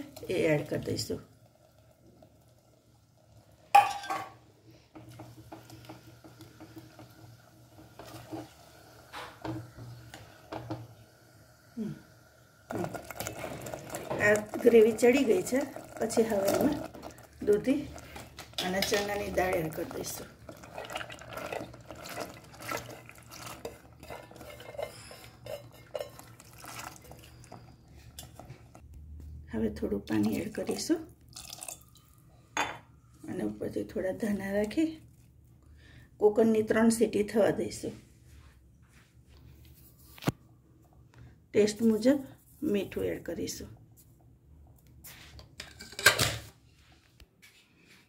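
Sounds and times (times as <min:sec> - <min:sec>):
spatula scraping and tapping pot: 0:04.9 - 0:10.9, 0:12.7 - 0:28.8.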